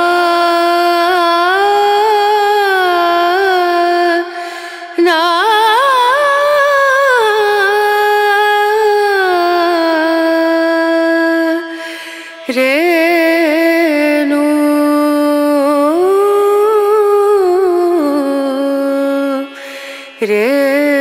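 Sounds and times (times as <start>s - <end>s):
person singing long notes: 12.4s - 21.0s.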